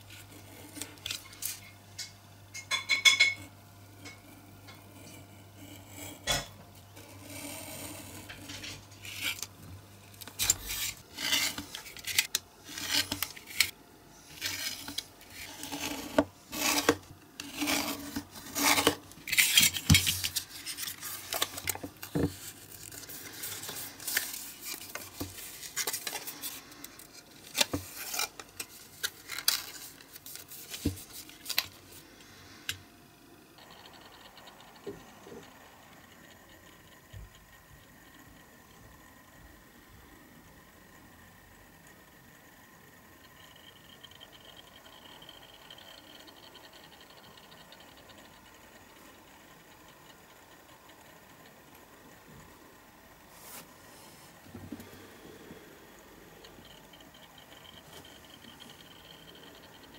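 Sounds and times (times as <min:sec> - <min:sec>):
craft knife scraping through card: 0:10.4 - 0:13.7, 0:14.4 - 0:26.8.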